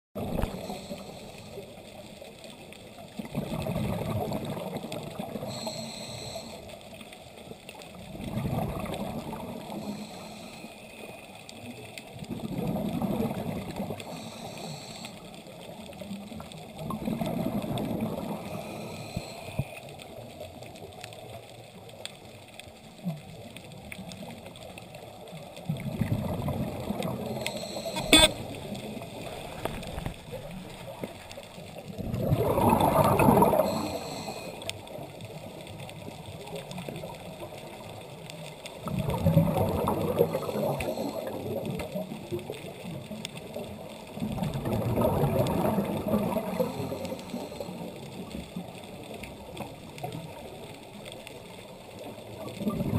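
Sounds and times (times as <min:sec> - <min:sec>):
regulator inhale hiss: 0:00.4 - 0:02.0, 0:05.4 - 0:06.8, 0:09.7 - 0:11.4, 0:14.0 - 0:15.4, 0:18.4 - 0:19.9, 0:27.3 - 0:28.4, 0:33.5 - 0:34.7, 0:40.5 - 0:41.4, 0:46.6 - 0:48.0.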